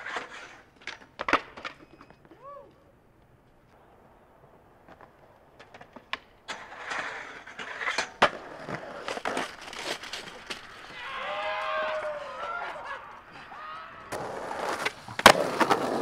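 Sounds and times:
skateboard clacks and knocks: 0.0s - 2.5s, 4.8s - 13.0s, 14.0s - 16.0s
skateboard rolling on concrete: 0.0s - 16.0s
wavering pitched cry: 10.9s - 14.4s.

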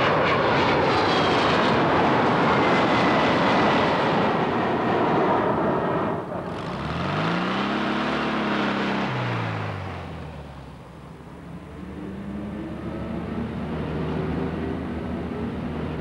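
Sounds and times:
engine revving: 6.4s - 10.4s.

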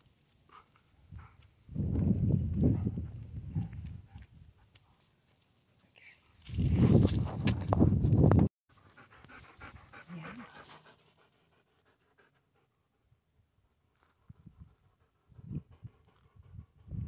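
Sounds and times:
dog panting: 8.8s - 12.8s, 14.8s - 17.0s.

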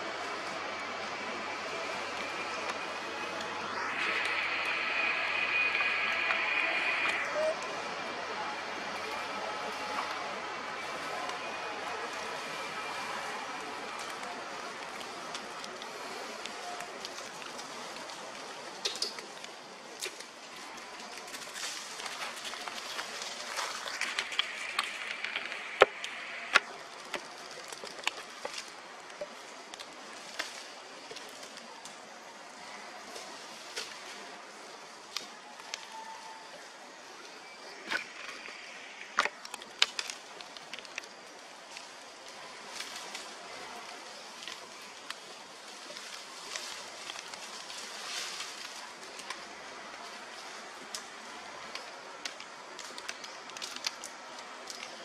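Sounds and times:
faint high hiss: 0.0s - 27.6s
dry leaves crackling underfoot: 0.0s - 37.0s, 37.7s - 55.0s
twigs snapping: 21.0s - 32.0s, 37.9s - 49.6s, 50.3s - 55.0s.

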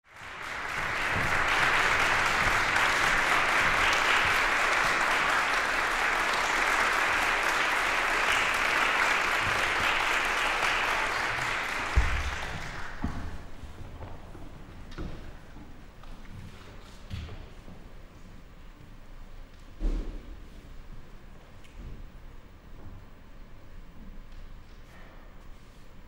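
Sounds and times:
audience applause: 0.0s - 13.6s.

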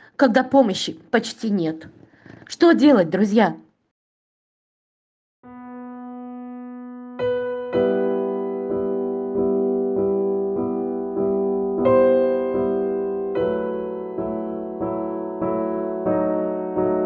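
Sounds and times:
slow gentle piano piece: 5.4s - 17.0s.

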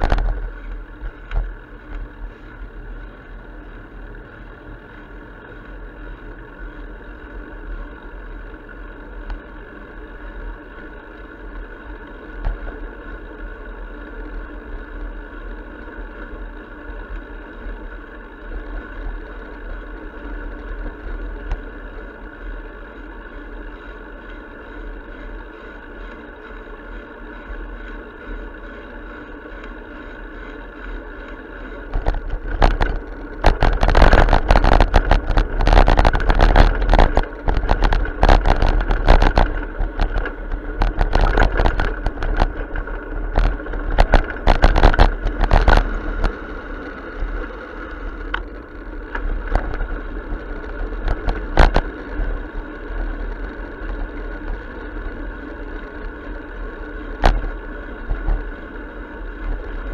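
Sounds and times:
wind noise on microphone: 31.9s - 46.5s.

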